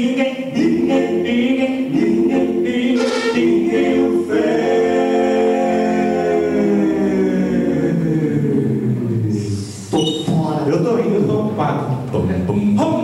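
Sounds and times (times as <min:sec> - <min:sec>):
male quartet singing a cappella: 0:00.0 - 0:10.2, 0:12.2 - 0:13.0.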